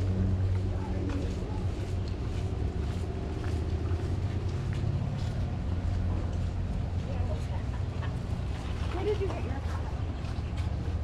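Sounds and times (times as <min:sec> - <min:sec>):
street noise: 0:00.0 - 0:11.0
vehicle engine running: 0:00.0 - 0:11.0.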